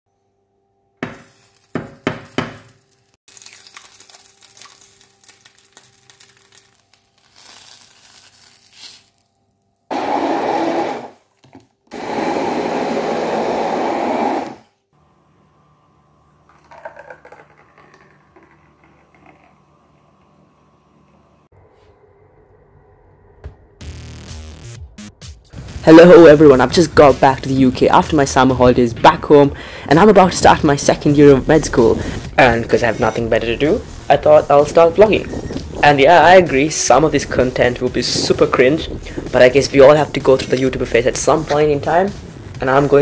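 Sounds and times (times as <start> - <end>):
immersion blender running: 9.9 - 11.2, 11.9 - 14.8
drink poured into mug: 16.5 - 19.6.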